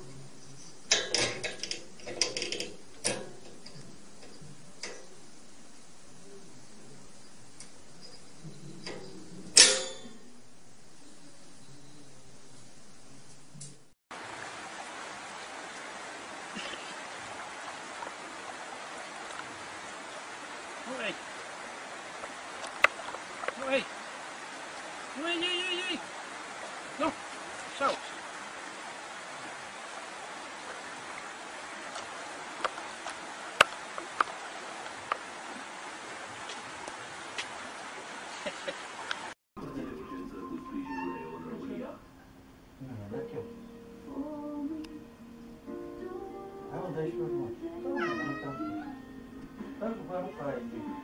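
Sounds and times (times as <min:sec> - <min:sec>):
flowing water rushing: 0:00.0 - 0:07.9, 0:14.1 - 0:41.9, 0:49.5 - 0:51.0
faint ticks: 0:00.5 - 0:05.3, 0:31.9 - 0:35.3, 0:44.8 - 0:45.0.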